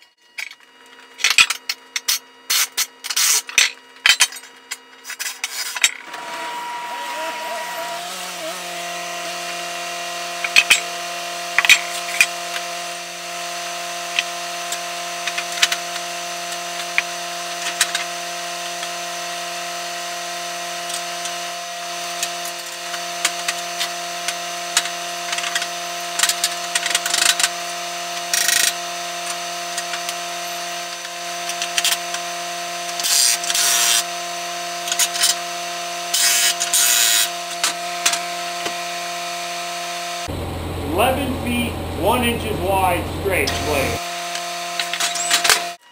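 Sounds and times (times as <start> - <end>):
steady hum: 40.2 - 44.0.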